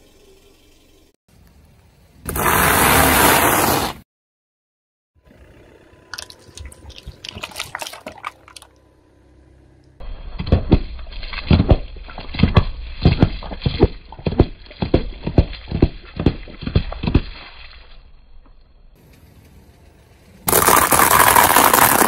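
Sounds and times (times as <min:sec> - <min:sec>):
plastic cups crackling: 0:06.1 - 0:08.7, 0:20.5 - 0:22.0
drink cartons bursting under tyre: 0:20.5 - 0:22.0.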